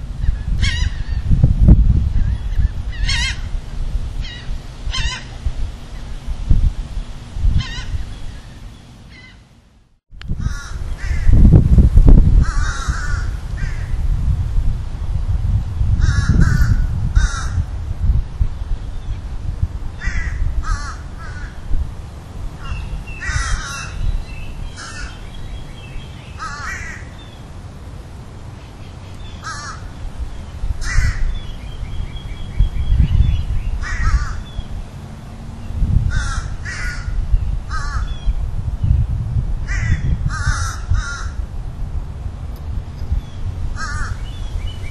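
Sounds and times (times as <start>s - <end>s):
low steady rumble: 0.0s - 44.9s
crows cawing: 10.4s - 11.4s, 12.4s - 13.9s, 16.0s - 17.6s, 20.0s - 21.6s, 22.6s - 24.0s, 24.8s - 25.2s, 26.4s - 27.1s, 29.4s - 29.9s, 30.8s - 31.3s, 33.8s - 34.5s, 36.1s - 38.2s, 39.7s - 41.4s, 43.8s - 44.3s.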